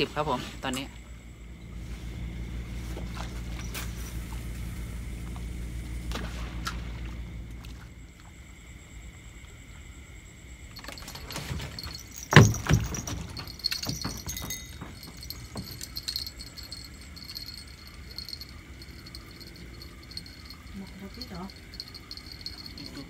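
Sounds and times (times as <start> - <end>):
metallic jingling and clattering: 3.1 - 4.2, 10.7 - 23.0.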